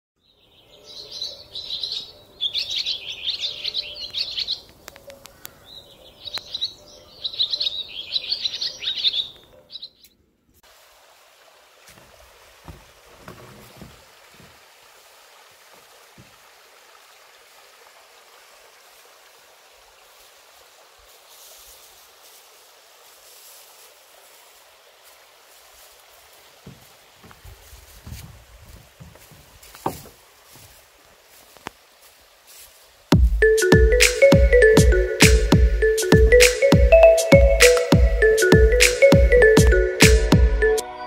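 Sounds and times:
songbird chirping: 0.2 - 10.4, 33.2 - 41.0
flowing water: 10.6 - 40.8
soft knocks: 11.9 - 14.6, 26.6 - 30.2.

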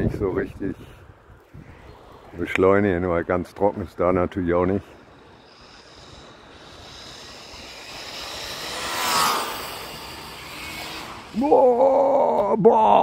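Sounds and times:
vehicle passing: 1.6 - 11.6.

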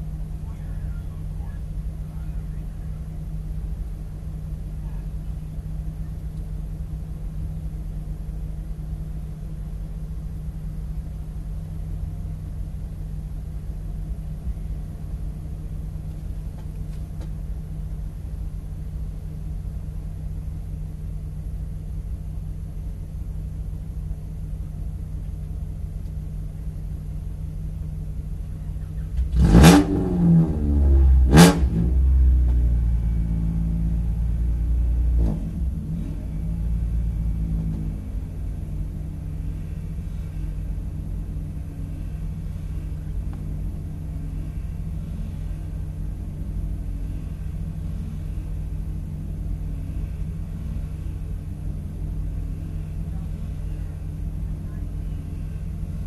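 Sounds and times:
car engine idling: 0.0 - 56.0
cars pulling away: 0.0 - 56.0
engine revving: 28.7 - 56.0.

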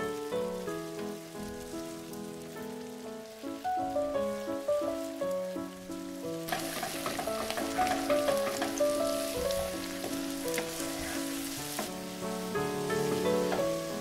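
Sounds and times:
background music sustained notes: 0.0 - 14.0
eggs sizzling in a frying pan: 0.0 - 14.0
spatula ticking against pan: 6.5 - 9.0.

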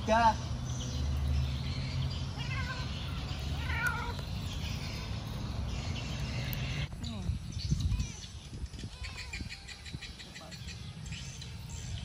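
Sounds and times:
cat meowing: 2.4 - 4.2.

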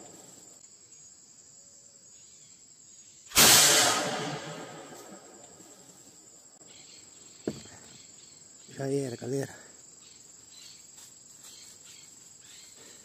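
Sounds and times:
high insect drone: 0.0 - 13.0
gunshot: 3.3 - 5.4.

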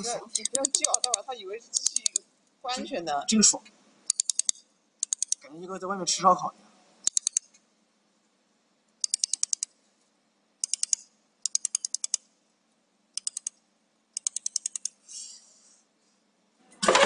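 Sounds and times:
laser welder rapid sharp ticks: 0.4 - 1.2, 1.8 - 2.2, 4.1 - 5.4, 7.1 - 7.5, 9.0 - 9.7, 13.2 - 13.6.

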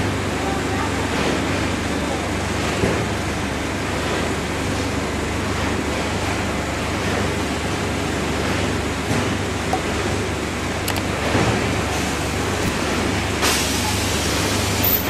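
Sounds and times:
packing machine whooshing and humming: 10.2 - 15.0.

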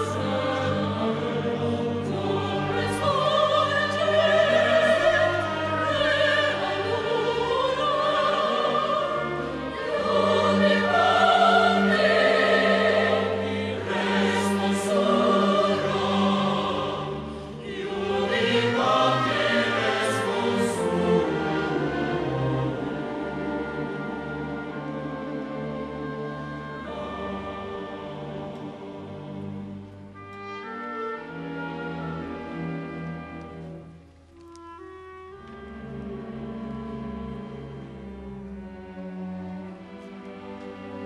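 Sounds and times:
mixed choir singing: 0.0 - 29.6
orchestra strings: 0.0 - 41.0.

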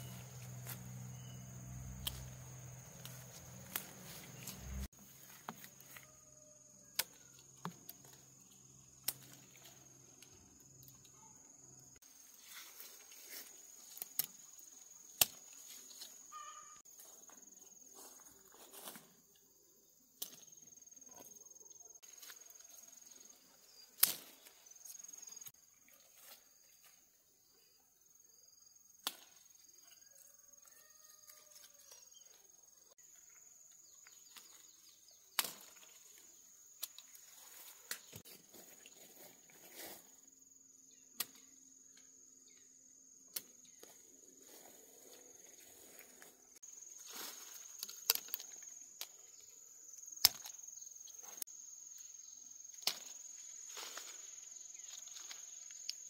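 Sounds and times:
high-pitched insect drone: 0.0 - 4.9.

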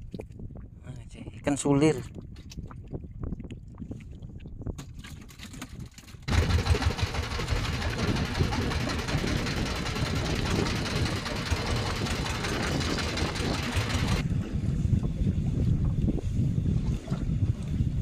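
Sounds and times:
wind on microphone: 0.0 - 18.0
hull moving through water: 2.0 - 18.0
boat engine running: 6.3 - 14.6.

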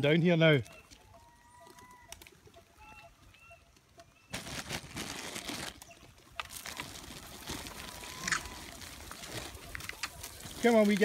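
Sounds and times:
faint bird chirps: 0.6 - 4.4.

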